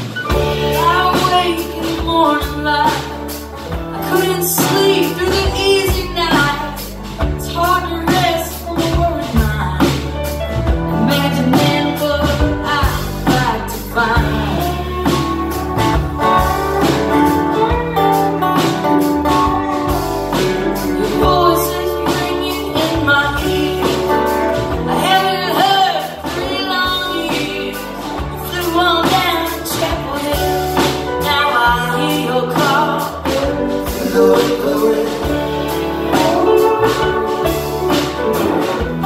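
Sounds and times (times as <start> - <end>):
live band playing: 0.0 - 39.0
lead vocal singing: 0.2 - 7.0, 19.4 - 39.0.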